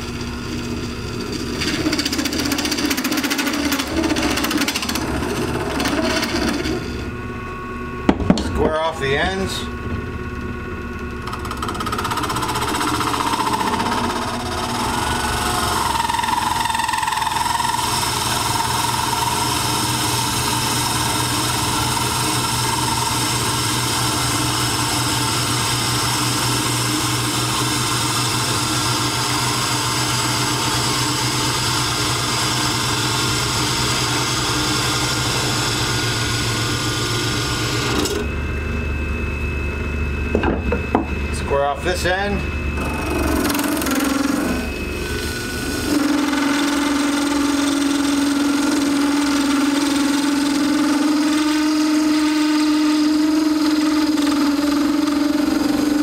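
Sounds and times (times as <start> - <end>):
lathe motor hum: 0.0 - 56.0
hand tool scraping spinning plastic: 11.2 - 23.2
wavering ringing tone: 11.6 - 17.4, 37.4 - 56.0.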